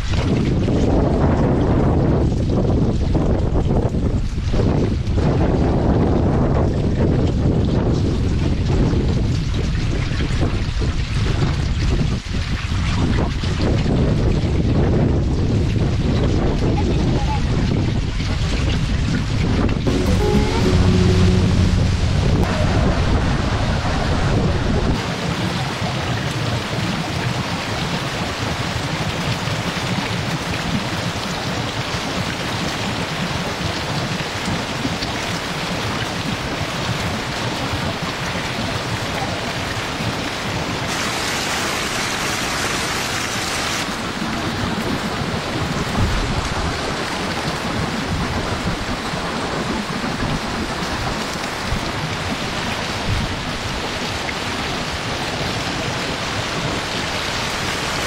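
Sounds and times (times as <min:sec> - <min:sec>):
water gushing down a chute: 0:22.4 - 0:58.0.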